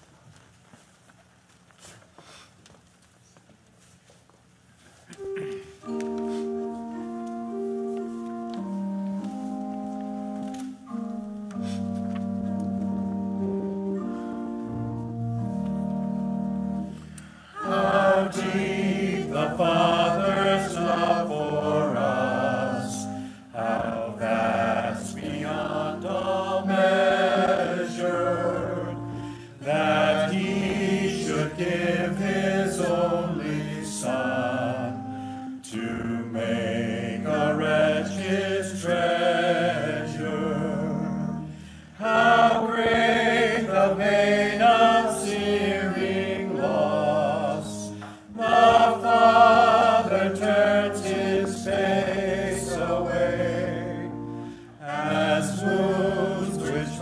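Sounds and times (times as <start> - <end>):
church organ chords: 5.1 - 57.0
choir singing a hymn: 12.9 - 57.0.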